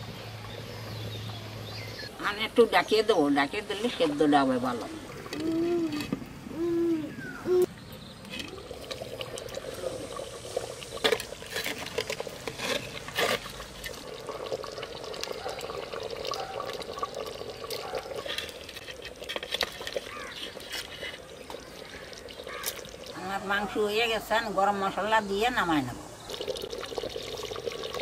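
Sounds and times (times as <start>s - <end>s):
curry bubbling in a pot: 8.0s - 28.0s
ladle stirring: 8.2s - 24.0s.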